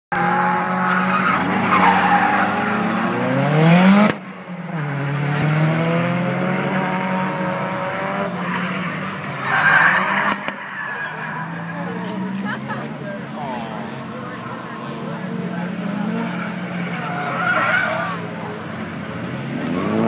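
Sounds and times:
car engine revving hard: 0:00.1 - 0:10.6, 0:13.8 - 0:20.0
tyre squeal: 0:07.2 - 0:11.8.

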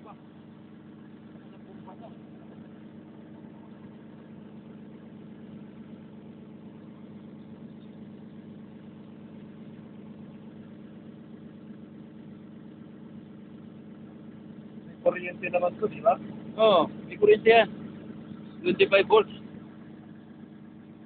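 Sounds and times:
excavator diesel engine idling: 0:00.0 - 0:21.0.

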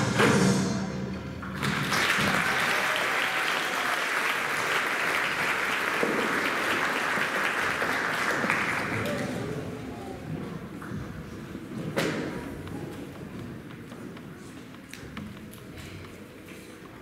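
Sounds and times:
music: 0:00.0 - 0:01.9
audience applauding: 0:01.5 - 0:09.8.

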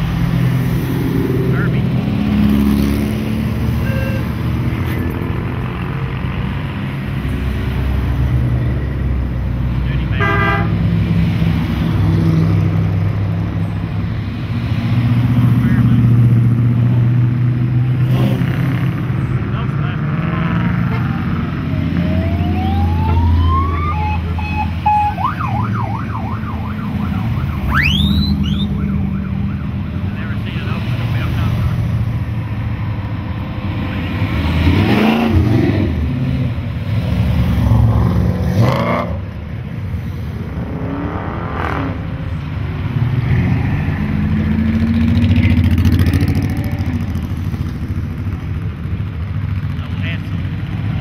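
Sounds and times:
cars driving past: 0:00.0 - 0:51.0
electronic siren wailing and yelping: 0:21.0 - 0:29.8.

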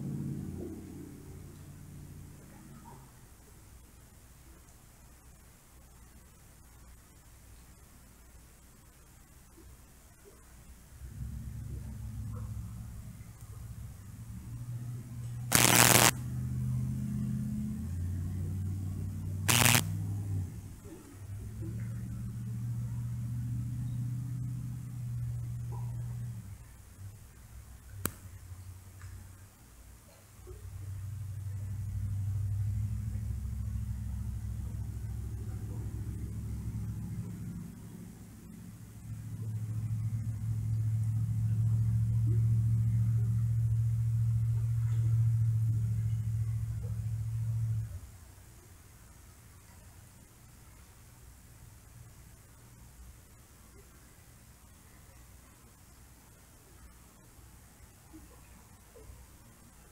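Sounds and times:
loud hiss bursts: 0:15.5 - 0:16.2, 0:19.5 - 0:19.9.

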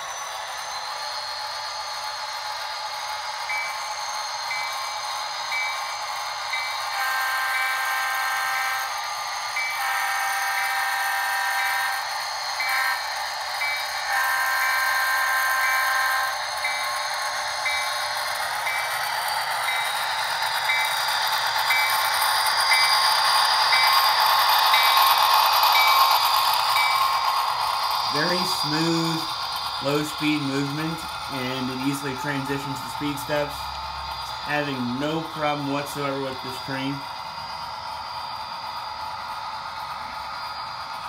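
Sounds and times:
diesel engine running: 0:00.0 - 0:41.0
train wheels rattling on track: 0:00.0 - 0:41.0
model train horn blasts: 0:07.0 - 0:08.9, 0:09.8 - 0:11.9, 0:12.6 - 0:13.0, 0:14.1 - 0:16.3.

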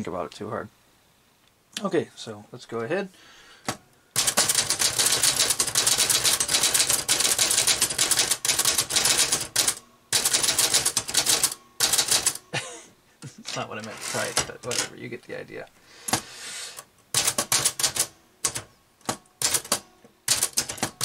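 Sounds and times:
typewriter key strikes: 0:04.2 - 0:12.4, 0:17.2 - 0:21.0.

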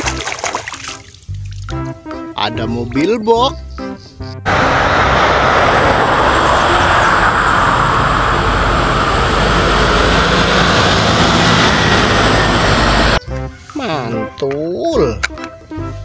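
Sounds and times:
highway traffic rushing past: 0:04.4 - 0:13.2.

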